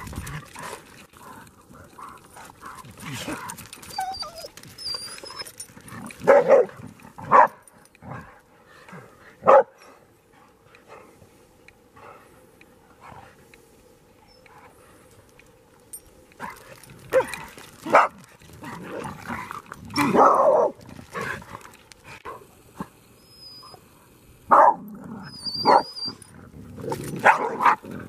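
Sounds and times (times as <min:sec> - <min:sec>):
dogs barking: 0:06.2 - 0:07.6, 0:09.4 - 0:09.8, 0:16.4 - 0:18.2, 0:24.5 - 0:24.8, 0:27.2 - 0:27.8.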